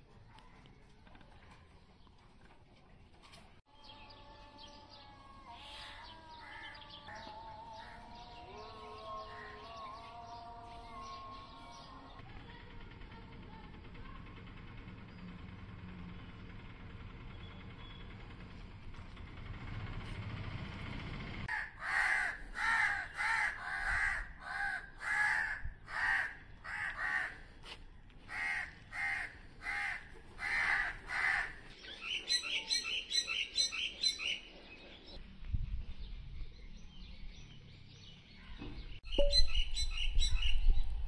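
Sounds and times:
crow cawing: 5.9 - 8.0, 21.5 - 27.5, 28.3 - 31.6
high-pitched bird calls: 31.2 - 34.6, 39.0 - 41.0.

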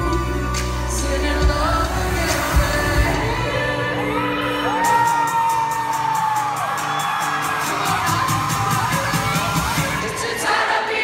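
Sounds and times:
deep bass: 0.0 - 4.2
woman singing: 0.0 - 5.5
live pop band: 0.0 - 11.0
fans whooping: 4.0 - 10.5.

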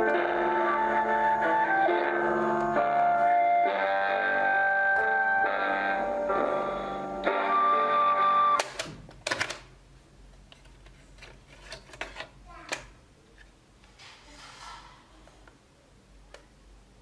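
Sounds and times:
music playing: 0.0 - 8.7
cassette eject mechanism clacking: 8.6 - 9.7
plastic cassette clicks and rattles: 8.6 - 9.7.

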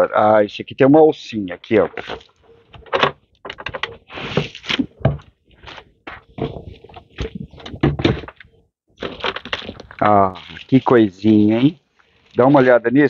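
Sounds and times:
cardboard box scraping and knocking: 3.7 - 8.4
plastic wrapping rustling: 5.5 - 12.8
dull thunks: 6.1 - 8.4.

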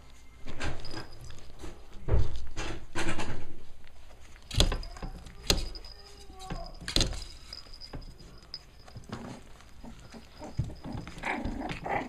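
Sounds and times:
puppies knocking and bumping: 4.4 - 12.0
puppy whimpering: 8.4 - 12.0.

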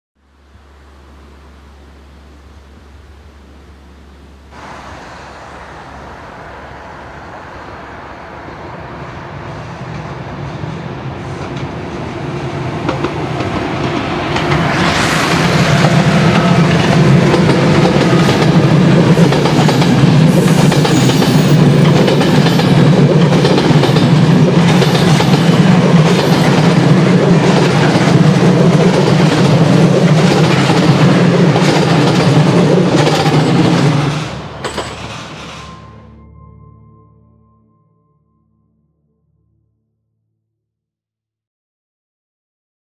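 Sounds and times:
train wheels clattering over rail joints: 15.7 - 35.7.

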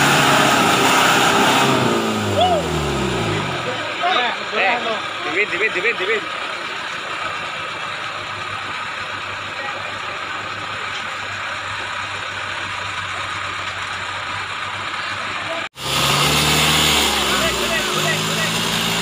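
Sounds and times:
deeper engine running: 0.0 - 19.0
engine idling: 2.1 - 16.0.

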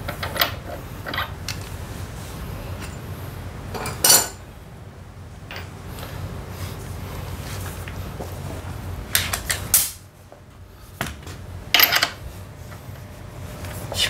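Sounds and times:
steady low hum: 0.0 - 14.0
metal tools clanking: 3.7 - 4.4, 11.7 - 12.2.

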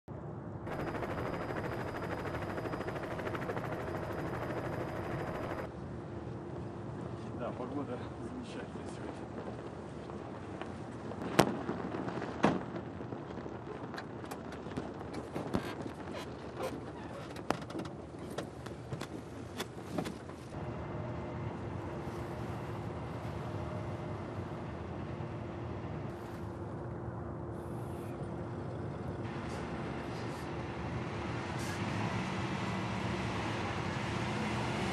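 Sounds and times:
helicopter rotor chopping: 0.7 - 5.7
high turbine whine: 0.7 - 6.7.

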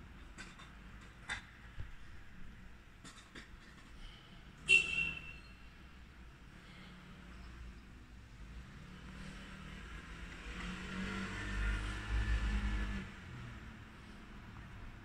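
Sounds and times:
motor vehicle passing by: 8.4 - 15.0.

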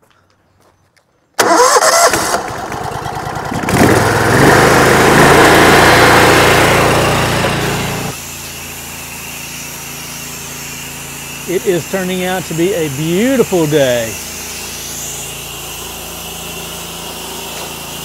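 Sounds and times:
pressure washer engine running: 2.0 - 18.0
hissing water spray: 3.8 - 18.0.

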